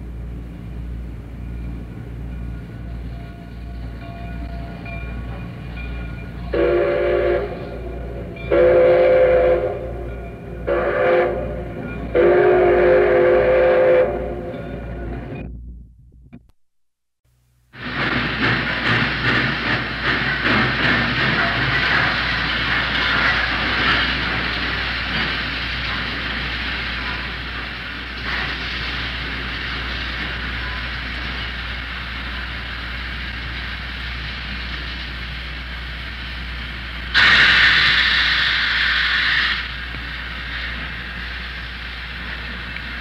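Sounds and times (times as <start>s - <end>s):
steam locomotive puffs and knocks: 0.6s - 15.6s, 17.8s - 43.0s
hiss of steam: 17.8s - 43.0s.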